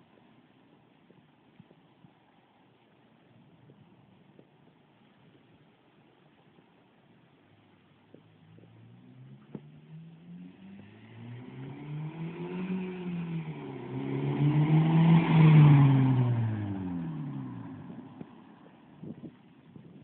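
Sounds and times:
car accelerating and passing: 8.2 - 19.0.

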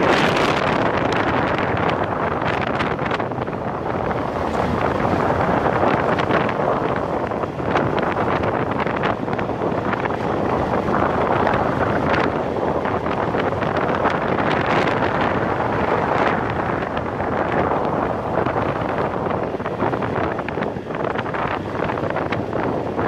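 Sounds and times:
wind rushing over microphone: 0.0 - 23.0.

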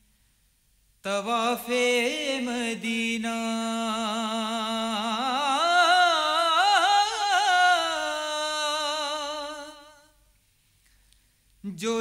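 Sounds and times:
man singing unaccompanied: 1.0 - 10.2, 11.6 - 12.0.

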